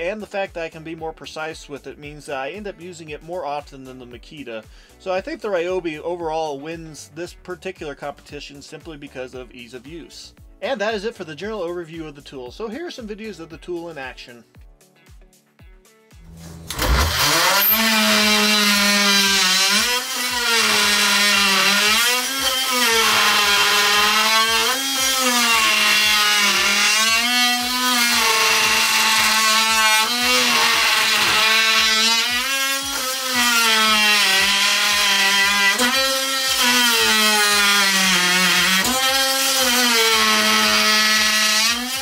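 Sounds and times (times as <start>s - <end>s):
oscillating multi-tool cutting wood: 16.3s - 42.0s.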